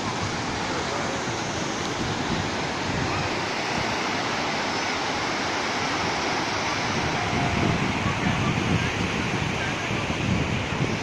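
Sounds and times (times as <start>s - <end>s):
sea waves breaking on beach: 0.0s - 11.0s.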